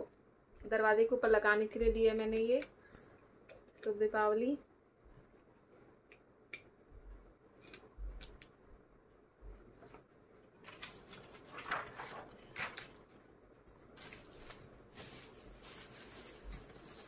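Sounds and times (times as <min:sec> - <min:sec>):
card and foil rustling: 0:10.6 - 0:13.3, 0:14.0 - 0:17.0.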